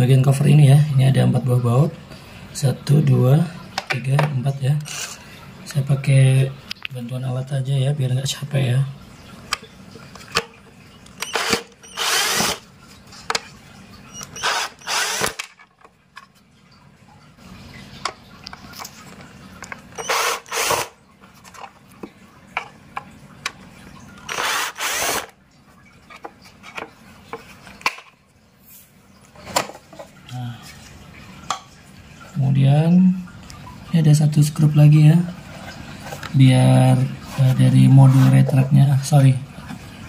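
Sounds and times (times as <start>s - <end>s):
cordless drill backing out screws: 11.2s - 12.6s, 14.2s - 15.5s, 20.0s - 20.9s.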